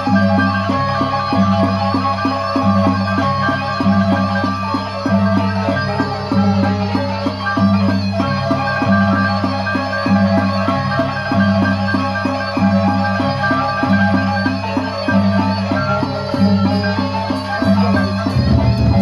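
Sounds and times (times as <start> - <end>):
gongs: 0.0 - 19.0
large barrel drums: 16.3 - 19.0
low two-pitch pulse: 18.3 - 19.0.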